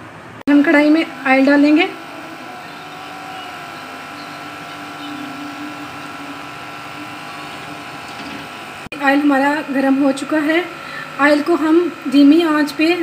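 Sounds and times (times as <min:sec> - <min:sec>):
steady mechanical hum: 0:00.0 - 0:13.0.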